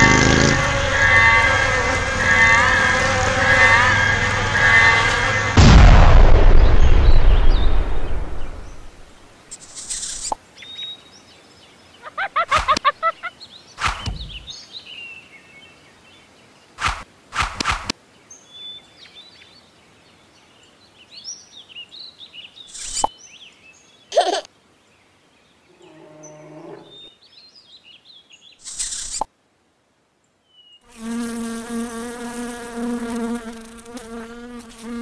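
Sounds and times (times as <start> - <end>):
high chirping glides: 0.0 - 5.6
loud rushing noise: 0.0 - 9.1
pops and clicks: 16.8 - 17.9.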